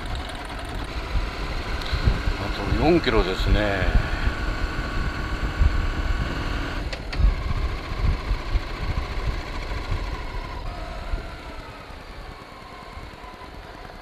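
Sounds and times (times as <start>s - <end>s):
wind rumble on microphone: 0.0s - 11.8s
motorcycle engine running: 0.0s - 14.0s.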